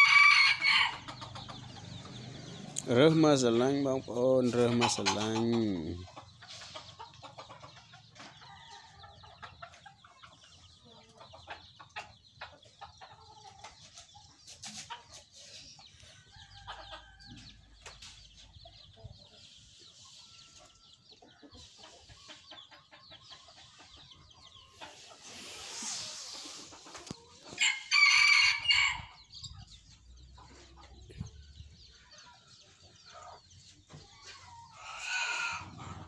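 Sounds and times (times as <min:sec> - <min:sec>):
chickens clucking: 0:00.0 - 0:36.0.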